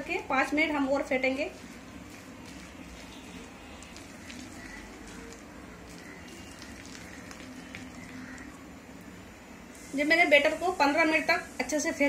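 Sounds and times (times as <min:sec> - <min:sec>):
hand squelching batter in bowl: 0:01.6 - 0:08.6.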